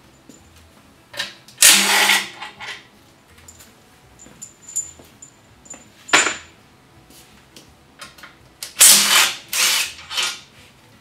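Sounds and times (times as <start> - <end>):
impact wrench bursts: 1.6 - 2.4, 8.8 - 10.4.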